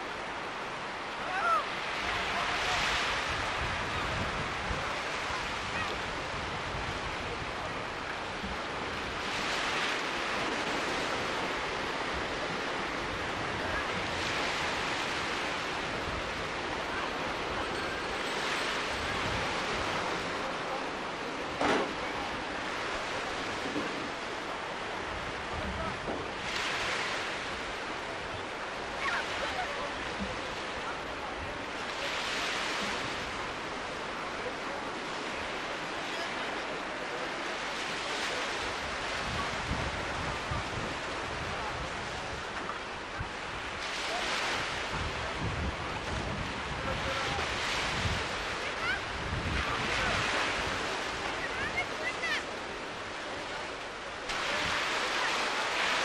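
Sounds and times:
sea surf washing on shore: 0:00.0 - 0:56.0
wind buffeting microphone: 0:02.7 - 0:20.4, 0:38.6 - 0:52.6.

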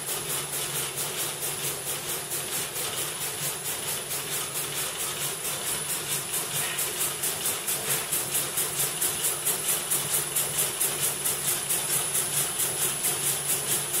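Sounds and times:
needle loom mechanical beat: 0:00.0 - 0:14.0.

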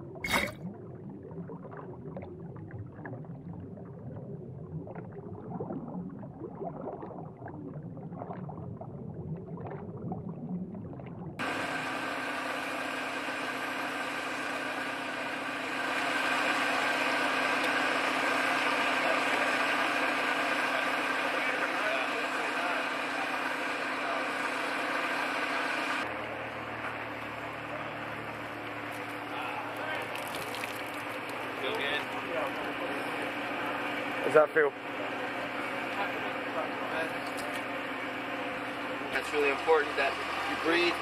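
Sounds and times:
underwater bubbles: 0:00.0 - 0:11.4
engine running: 0:11.4 - 0:41.0.

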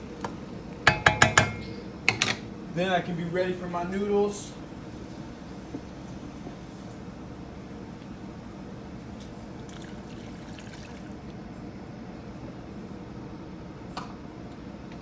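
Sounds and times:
pot boiling: 0:00.0 - 0:01.9, 0:04.2 - 0:11.4
water pouring into a wok: 0:09.6 - 0:11.3.

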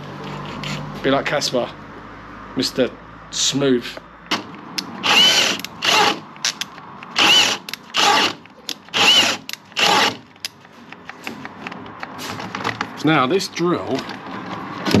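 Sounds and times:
power drill motor whine: 0:05.0 - 0:06.2, 0:07.2 - 0:10.2.

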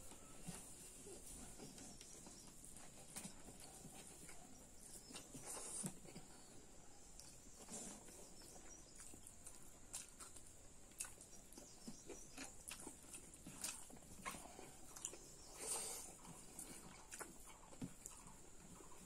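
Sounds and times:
chewing and mouth noises: 0:01.0 - 0:19.0.

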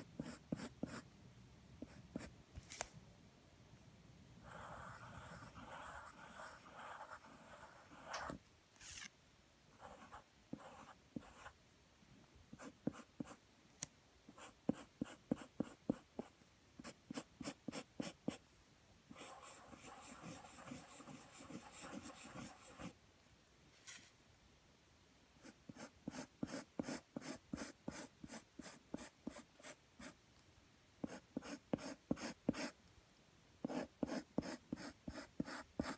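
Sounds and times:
pencil scratching on paper: 0:00.0 - 0:01.0, 0:04.4 - 0:08.4, 0:09.8 - 0:11.6, 0:12.6 - 0:13.4, 0:14.4 - 0:18.4, 0:19.1 - 0:23.0, 0:25.4 - 0:30.2, 0:31.0 - 0:32.8, 0:33.6 - 0:35.9.

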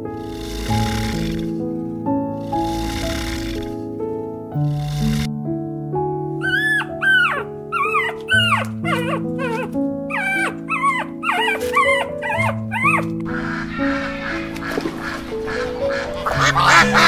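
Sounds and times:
soft piano music: 0:00.0 - 0:17.0
puppy whimpering: 0:06.4 - 0:14.6.

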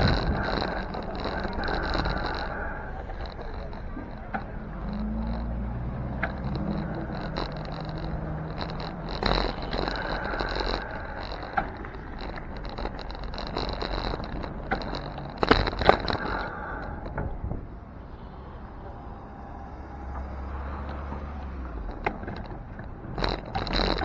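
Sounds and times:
car engine running: 0:00.0 - 0:17.6
clatters: 0:00.0 - 0:17.7, 0:18.8 - 0:24.0
road noise rumble: 0:00.0 - 0:24.0.

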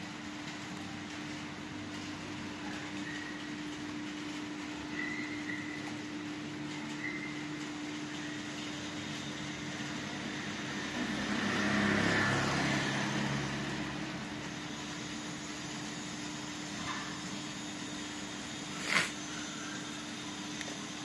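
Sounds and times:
motor scooter passing on wet road: 0:08.1 - 0:16.0.

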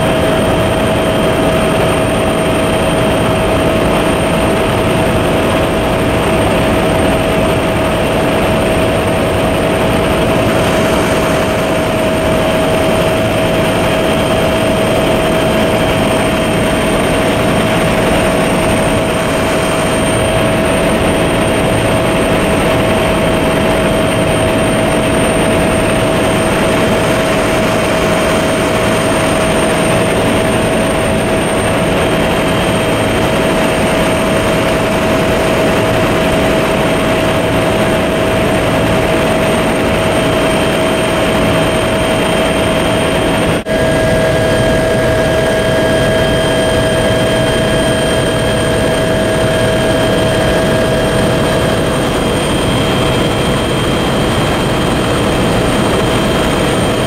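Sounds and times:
helicopter engine and rotor: 0:00.0 - 0:57.0.

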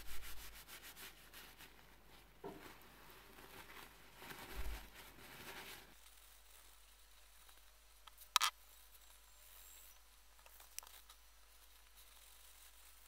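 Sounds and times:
paper towel rustling and crinkling: 0:00.0 - 0:07.9, 0:10.5 - 0:13.0.

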